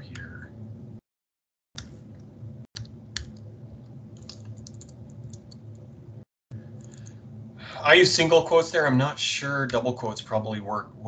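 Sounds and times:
low steady hum: 0.0s - 1.0s, 1.8s - 11.0s
keyboard typing: 4.2s - 5.8s.

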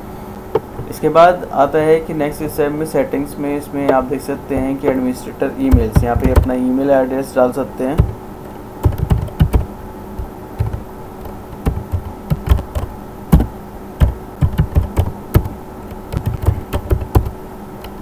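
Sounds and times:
faint steady hum: 0.0s - 18.0s
keyboard typing clicks: 5.7s - 6.5s, 8.8s - 18.0s.

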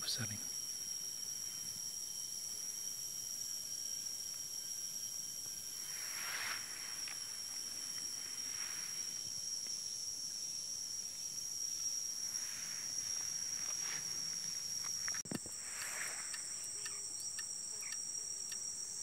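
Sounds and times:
insect chorus: 0.0s - 19.0s
short hissing swells: 5.8s - 7.6s, 15.6s - 16.5s.

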